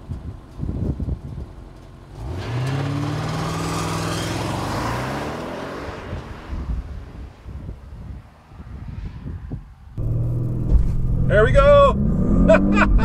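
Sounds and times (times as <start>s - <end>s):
car engine accelerating hard: 10.0s - 13.0s.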